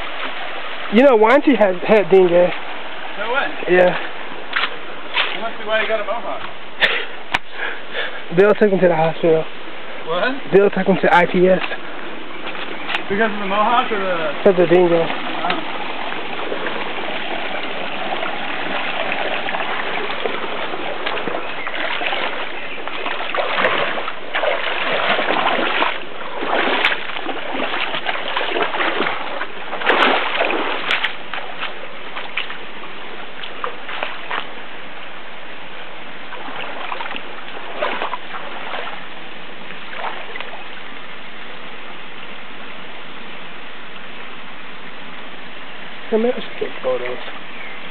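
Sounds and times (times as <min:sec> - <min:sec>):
water splashing: 0:00.0 - 0:07.5, 0:08.4 - 0:41.2
stream water rushing: 0:00.0 - 0:47.9.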